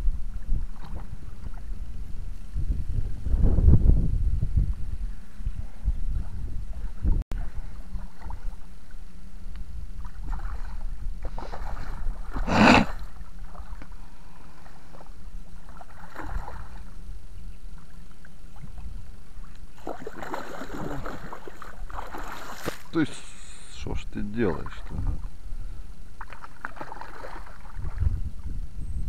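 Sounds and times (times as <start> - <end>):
low wind rumble on microphone: 0.0 - 22.5, 23.8 - 29.0
fish splashing in water: 15.0 - 16.9, 19.7 - 23.0, 26.2 - 28.0.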